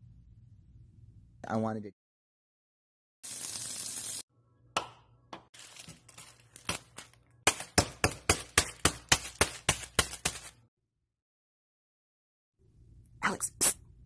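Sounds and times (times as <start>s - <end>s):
wrapper crinkling: 5.6s - 7.7s
rod striking noodle packet: 5.6s - 10.6s.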